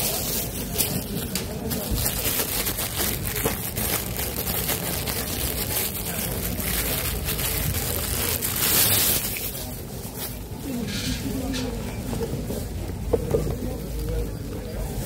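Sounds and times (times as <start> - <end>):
plastic bag rustling: 0.0 - 10.8
steady rumbling noise: 0.8 - 10.0.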